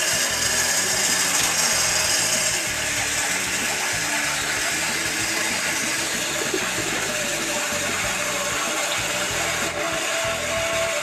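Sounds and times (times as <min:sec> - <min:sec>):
small electric motor whirring: 0:00.0 - 0:11.0.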